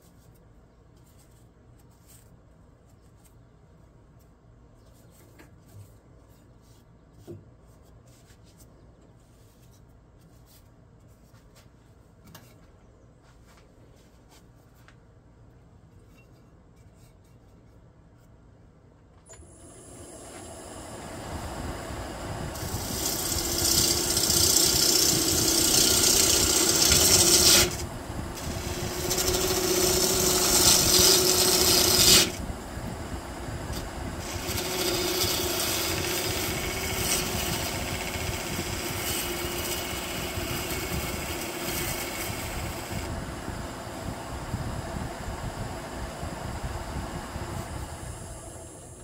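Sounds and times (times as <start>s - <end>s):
wood lathe running: 19.6s - 44.6s
gouge cutting wood with hiss: 22.5s - 32.4s, 33.6s - 43.1s.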